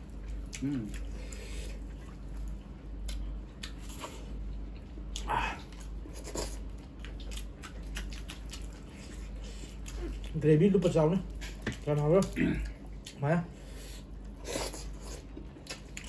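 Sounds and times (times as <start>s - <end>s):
chewing and mouth smacks: 0.1s - 10.4s, 11.2s - 13.2s, 14.2s - 16.0s.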